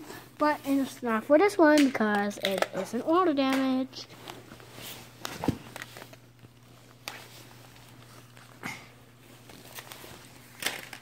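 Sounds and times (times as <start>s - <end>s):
phones tapping and rustling: 1.6s - 8.5s.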